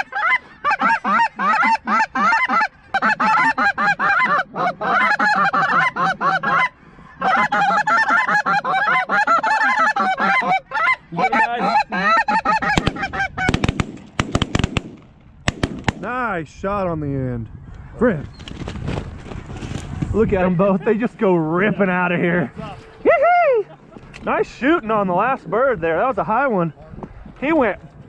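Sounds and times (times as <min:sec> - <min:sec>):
geese honking: 0:00.0 - 0:13.6
shotgun shots: 0:12.8 - 0:16.1.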